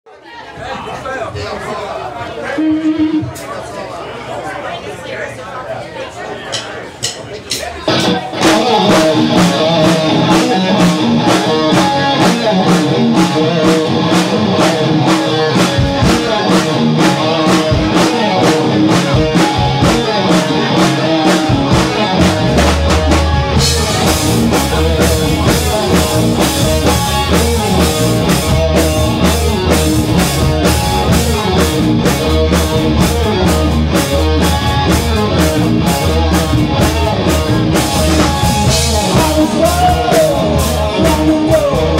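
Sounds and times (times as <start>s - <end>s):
drum kit beat: 6.5s - 41.9s
electric guitar: 7.9s - 41.9s.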